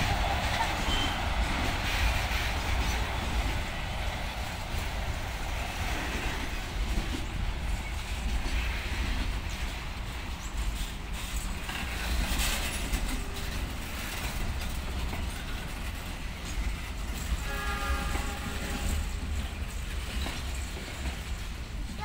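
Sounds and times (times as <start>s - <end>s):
train wheels rumbling on rails: 0.0s - 22.0s
train horn: 17.3s - 19.3s.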